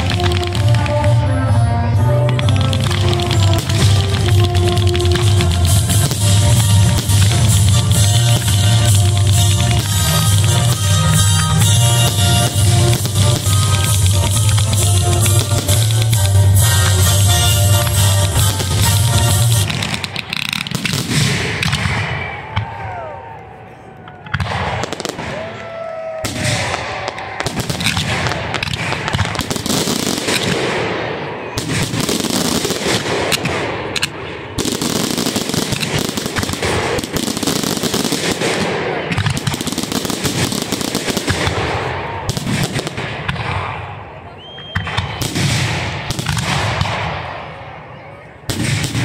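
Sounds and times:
fireworks crackle: 0.0 - 1.5, 2.2 - 22.6, 24.3 - 43.7
fireworks bursting: 0.0 - 22.8, 24.3 - 47.6, 48.5 - 49.0.

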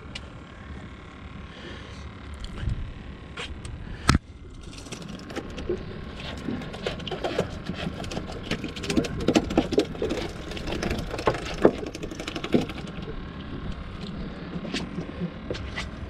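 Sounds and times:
low steady rumble: 0.0 - 16.0
wire trap rattling and clicking: 4.5 - 13.1.

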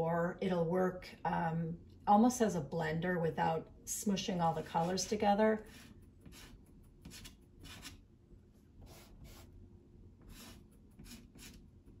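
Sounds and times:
pastel stick scraping paper: 4.5 - 8.0, 10.2 - 11.6.

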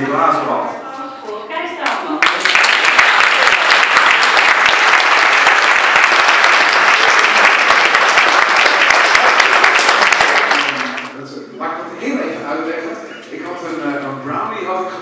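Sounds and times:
crowd applauding: 2.0 - 11.2.

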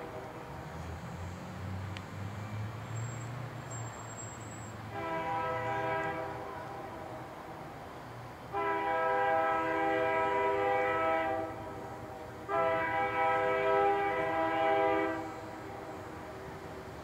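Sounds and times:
locomotive air horn blasts: 4.9 - 7.1, 8.5 - 15.9.

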